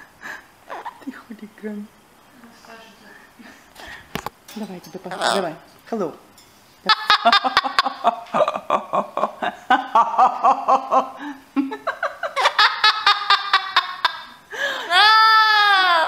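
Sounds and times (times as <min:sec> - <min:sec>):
parrot laugh-like calls: 0:06.9 - 0:11.2.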